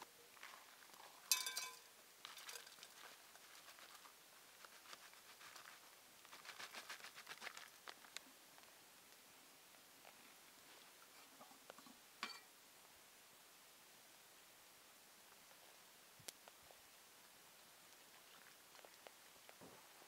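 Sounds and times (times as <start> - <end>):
dry soup mix pattering into pot: 0.4 - 8.2
ringing metallic clink: 1.3 - 1.8
foil pouch rustling: 2.3 - 8.2.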